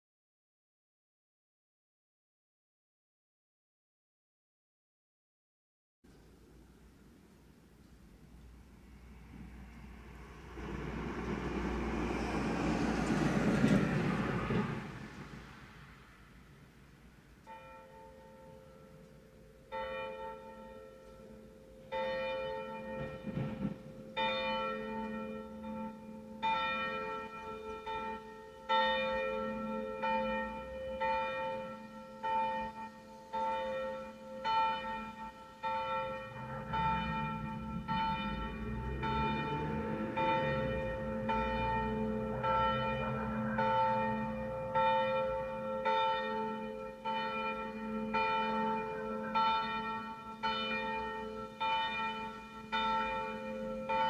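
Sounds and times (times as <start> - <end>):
low rumble: 8.0 - 17.3, 36.0 - 45.4
church bell ringing: 17.4 - 54.0.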